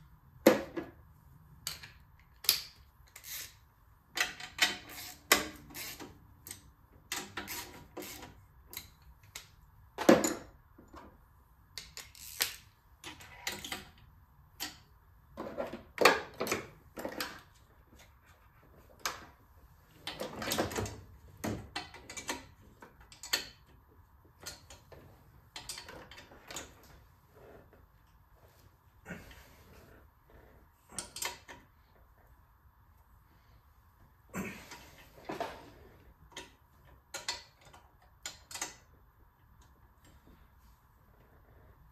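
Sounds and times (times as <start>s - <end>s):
ratchet wrench clicking: 2.4s - 3.6s, 4.2s - 9.5s, 11.8s - 12.7s.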